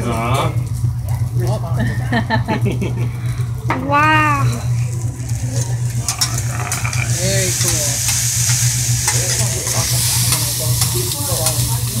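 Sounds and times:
steady low hum: 0.0s - 12.0s
rice sizzling on a griddle: 4.0s - 12.0s.

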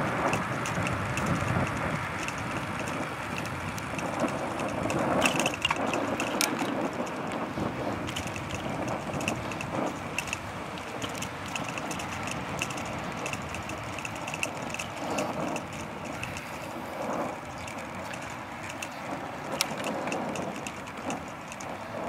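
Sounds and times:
bicycle tyres on tarmac: 0.0s - 22.0s
light regular ticking: 0.0s - 22.0s
wind buffeting microphone: 0.0s - 22.0s.

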